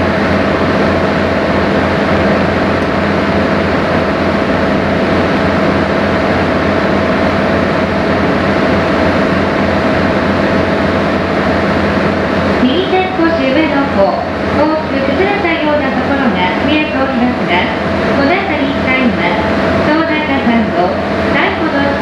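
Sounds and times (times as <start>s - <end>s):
boat engine droning: 0.0s - 22.0s.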